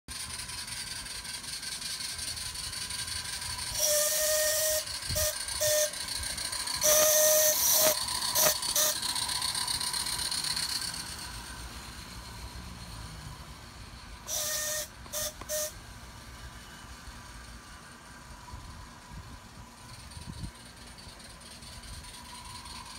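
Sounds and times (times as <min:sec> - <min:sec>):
steam whistle toots: 0:03.0 - 0:10.8, 0:14.2 - 0:15.8.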